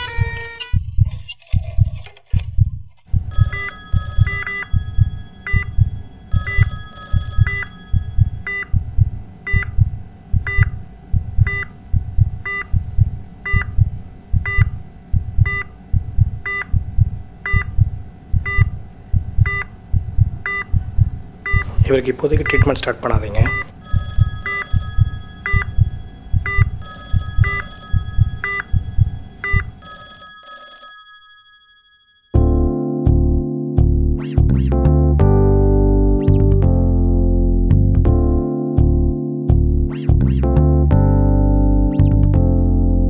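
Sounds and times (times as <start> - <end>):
heartbeat thumps: 2.5 - 3.6, 7.4 - 22.8, 25.5 - 26.8
patient monitor beeping: 3.1 - 8.8, 10.5 - 10.8, 11.5 - 11.7, 20.4 - 20.8, 21.5 - 30.8
electronic ringing bursts: 3.3 - 8.8, 23.5 - 30.9.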